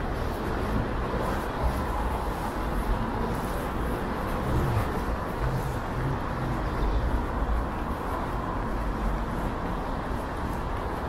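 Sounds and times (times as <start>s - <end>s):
traffic rumble on wet road: 0.0s - 11.0s.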